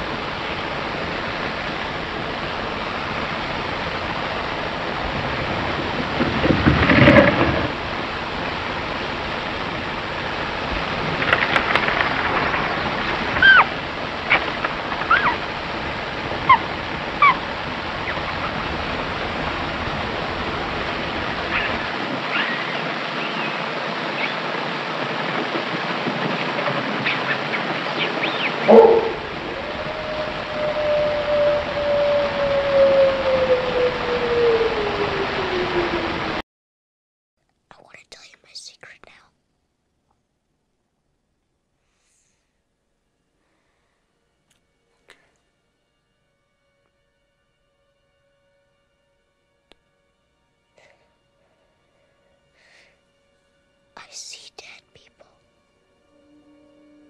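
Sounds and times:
heavy film soundtrack hiss: 0.0s - 36.4s, 45.5s - 57.0s
creak: 6.4s - 7.8s
short high squeaks: 15.1s - 15.4s.

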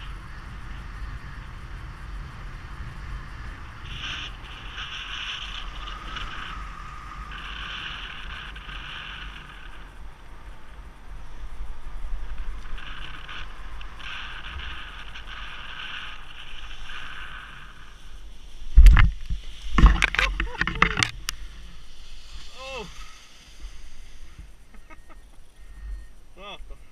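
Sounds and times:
wind rushing over microphone: 0.0s - 26.9s.

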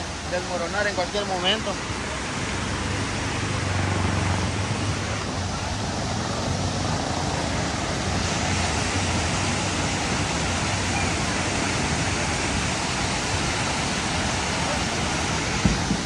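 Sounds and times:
floodwater rushing roar: 0.0s - 16.0s.

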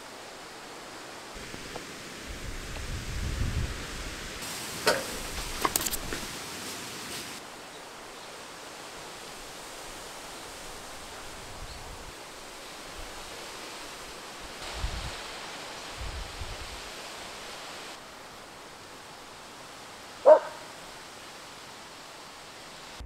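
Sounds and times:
outdoor background hiss: 0.0s - 23.0s
dog barking: 20.2s - 20.7s.

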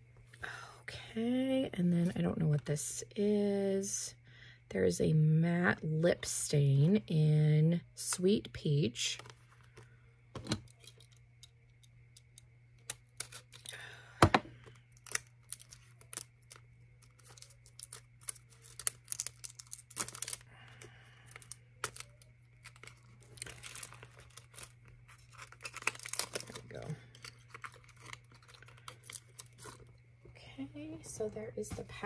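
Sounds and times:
plastic wrap tearing and crinkling: 13.1s - 13.7s, 14.9s - 29.9s
packaging clicks: 14.6s - 29.9s.

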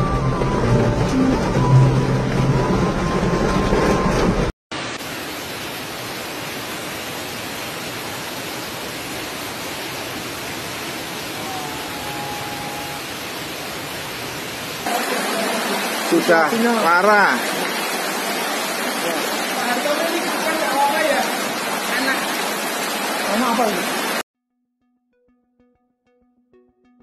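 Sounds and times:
music: 0.0s - 4.2s, 24.4s - 27.0s
torrential rain and rushing water: 0.0s - 24.2s
traffic driving through rain: 5.2s - 24.2s.

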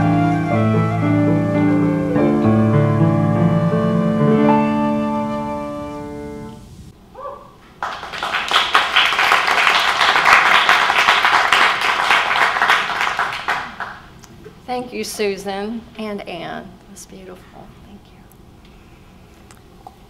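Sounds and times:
held musical chord: 0.0s - 6.9s
audience applause: 7.8s - 14.1s.

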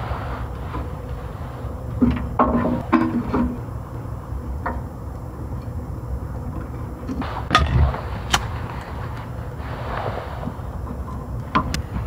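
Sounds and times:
steady low rumble: 3.5s - 12.0s.

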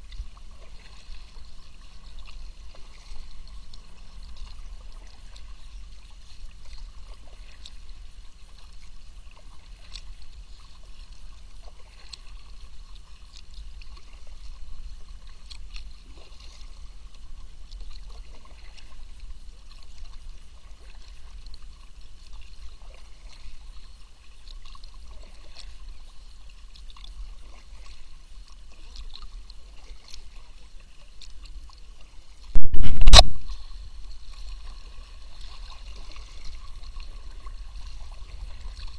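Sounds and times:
water dripping from paddle: 0.0s - 8.0s, 8.6s - 21.6s
loud thump near kayak: 32.6s - 33.5s.

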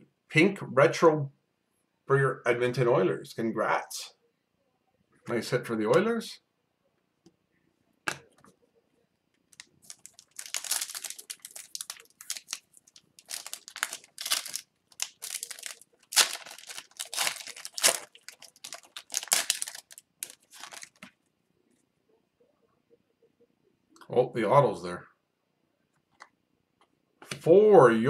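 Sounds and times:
foil wrapper crinkling and tearing: 9.5s - 21.1s.

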